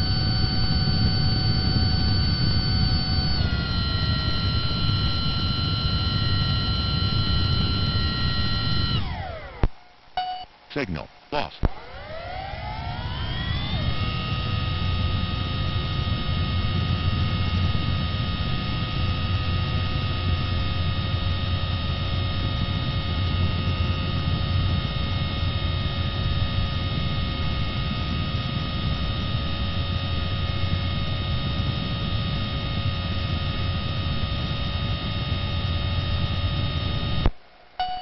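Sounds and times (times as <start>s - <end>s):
electric motor and propeller whining: 0.0s - 9.7s, 11.7s - 37.3s
radio link hiss: 10.6s - 12.1s.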